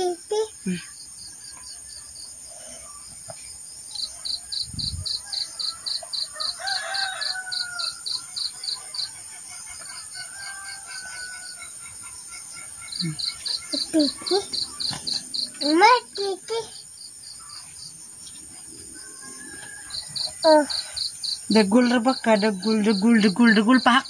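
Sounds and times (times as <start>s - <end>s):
high insect hiss: 0.0s - 24.0s
insects chirping in pulses: 0.0s - 24.0s
rooster crowing: 4.5s - 8.5s, 10.0s - 11.8s, 19.0s - 20.8s.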